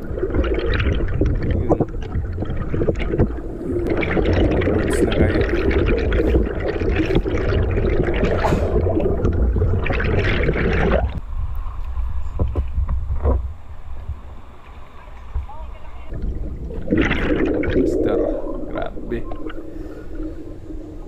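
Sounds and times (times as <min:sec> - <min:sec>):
water splashing: 0:00.0 - 0:11.2, 0:12.3 - 0:21.0
muffled churning and bubbling water: 0:00.0 - 0:21.0
underwater low rumble: 0:00.0 - 0:21.0.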